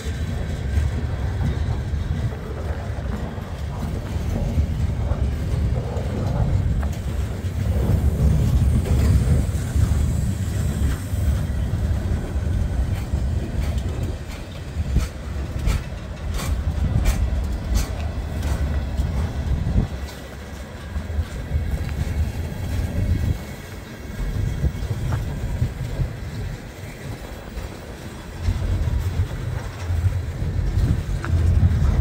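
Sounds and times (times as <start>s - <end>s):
train wheels rumbling on rails: 0.0s - 32.0s
wheels clicking over rail joints: 0.0s - 32.0s.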